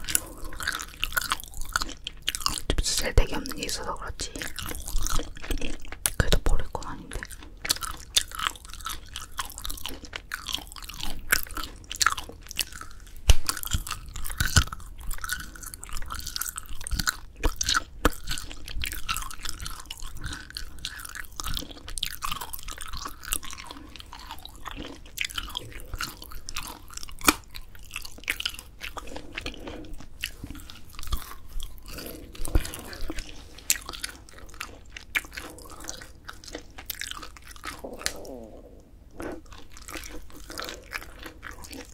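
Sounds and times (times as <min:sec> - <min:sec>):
crunchy chewing: 0:00.0 - 0:41.9.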